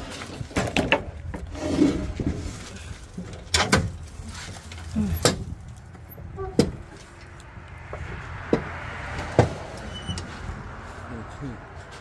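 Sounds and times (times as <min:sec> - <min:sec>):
metal scraping on wood: 0:00.0 - 0:02.8.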